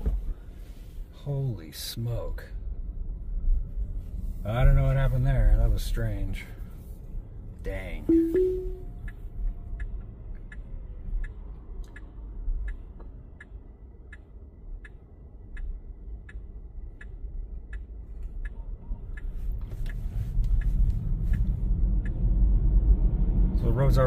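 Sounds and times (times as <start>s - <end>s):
short tone: 8.1s - 8.9s
turn signal ticking: 8.1s - 22.6s.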